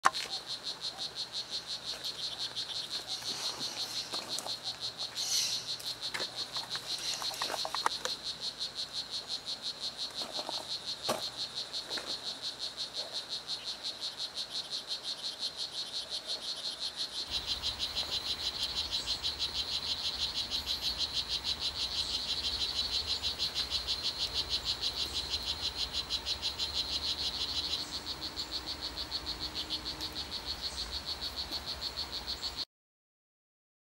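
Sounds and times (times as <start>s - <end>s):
frog chirping call: 0.0s - 32.6s.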